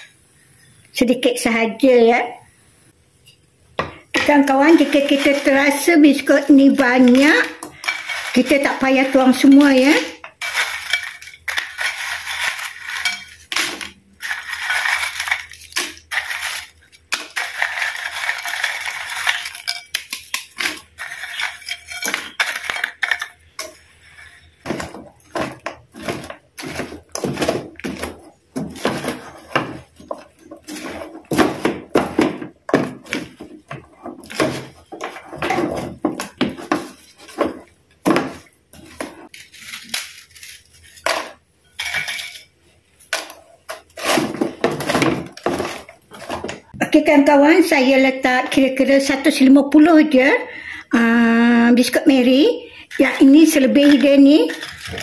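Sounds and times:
spatula crunching biscuits in pan: 3.9s - 46.8s.

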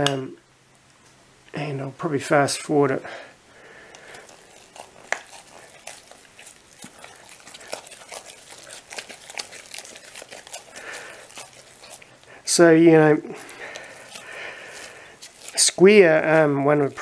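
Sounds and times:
knife stirring sticky dough: 3.6s - 17.0s.

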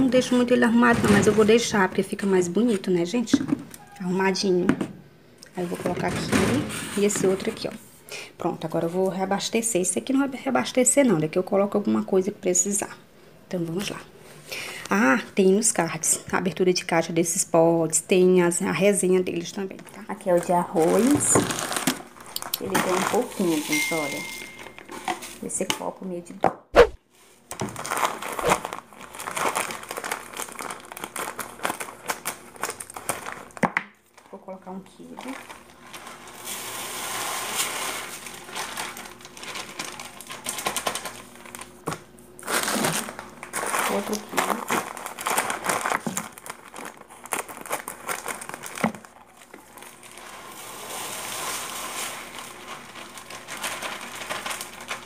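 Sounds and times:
plastic bag crinkling: 20.1s - 25.5s, 27.5s - 55.0s
rice grains pouring into plastic: 49.8s - 55.0s.

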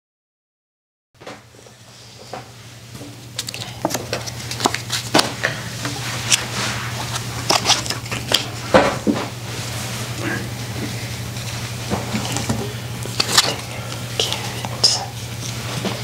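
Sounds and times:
steady low hum: 1.2s - 16.0s
playing cards clicking and slapping: 3.3s - 5.5s, 7.1s - 9.2s, 11.9s - 15.0s.

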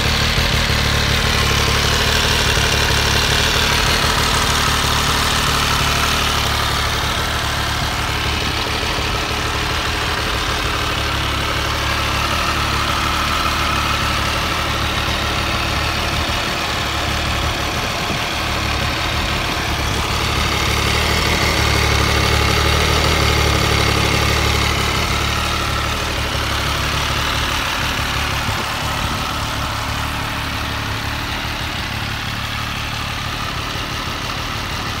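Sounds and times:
motorcycle engine idling: 0.0s - 35.0s.

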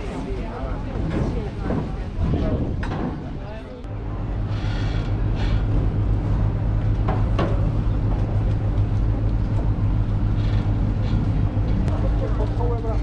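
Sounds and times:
boat engine idling: 3.8s - 13.0s.

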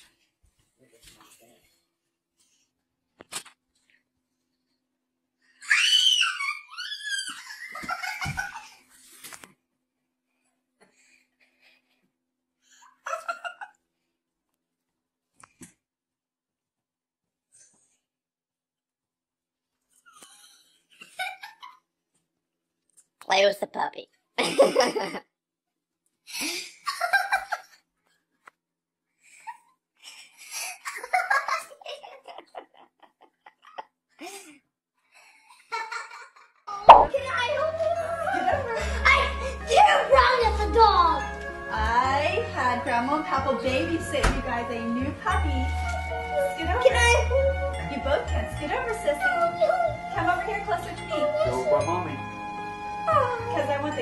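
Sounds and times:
girl squealing: 5.6s - 7.8s
woman laughing excitedly: 24.4s - 25.2s.

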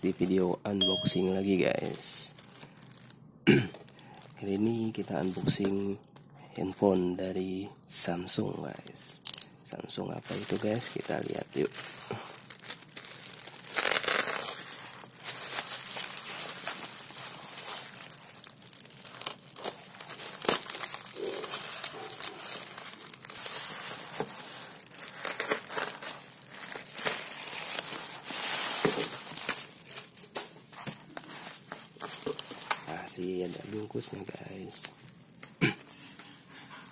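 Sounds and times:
plastic bag crinkling: 0.0s - 6.9s, 10.1s - 35.5s
plastic tearing: 1.8s - 6.2s, 10.2s - 33.0s.

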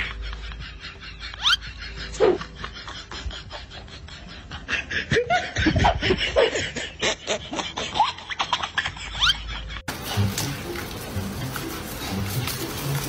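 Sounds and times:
person laughing and snickering: 0.0s - 10.0s
cats scuffling: 9.9s - 13.0s.

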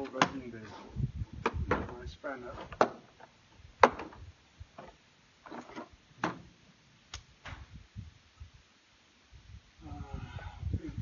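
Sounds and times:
hand tools clicking and clunking: 0.0s - 0.8s.

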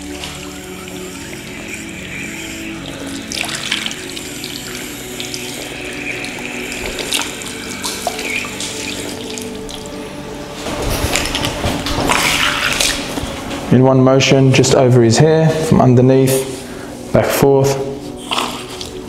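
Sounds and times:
water pouring and splashing: 0.0s - 13.7s.

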